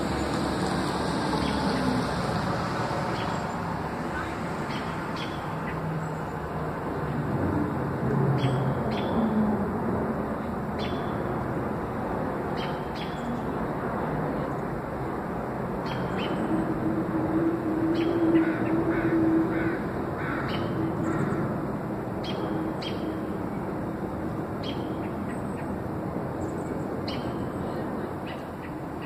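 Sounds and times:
birds chirping: 3.0 - 7.1, 10.8 - 11.4, 12.5 - 13.7, 15.8 - 16.8, 17.8 - 21.5.

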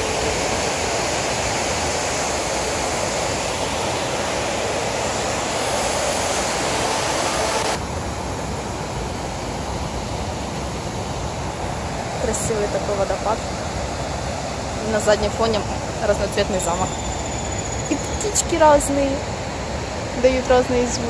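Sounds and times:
waterfall rushing: 0.0 - 16.8.

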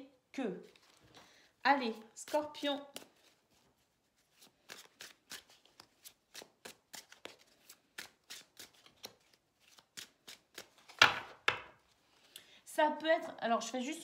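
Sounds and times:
cards being shuffled: 0.6 - 1.2, 1.9 - 12.3.

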